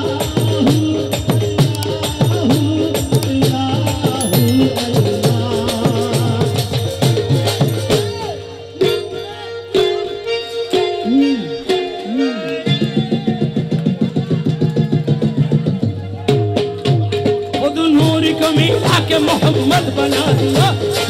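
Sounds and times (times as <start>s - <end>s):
hand drums with pitch glides: 0.0s - 9.0s.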